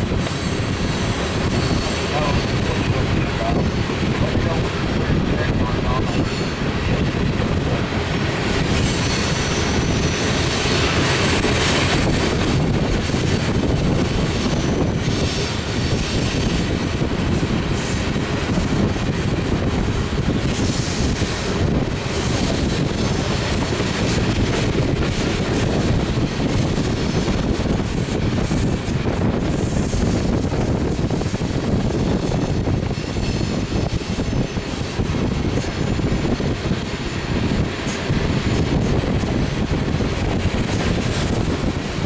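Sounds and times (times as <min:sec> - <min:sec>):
train wheels rolling on rails: 0:00.0 - 0:42.0.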